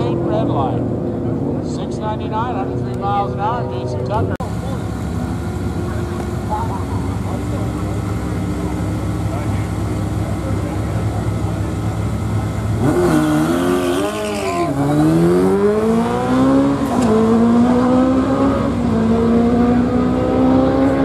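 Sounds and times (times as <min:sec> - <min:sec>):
motorcycle engines accelerating: 0:00.0 - 0:21.0.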